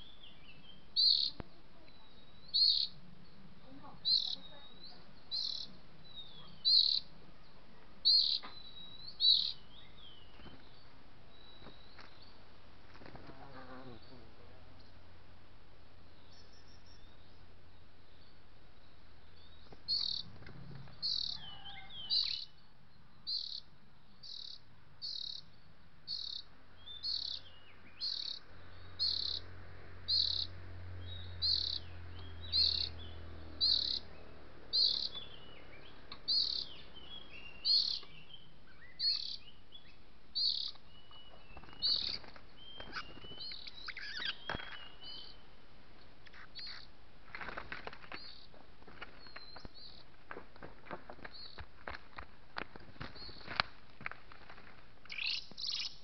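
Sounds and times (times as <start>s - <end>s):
magpie-robin calling: 0.0s - 12.3s, 19.4s - 20.3s, 20.9s - 45.6s, 46.2s - 47.0s, 55.1s - 56.0s.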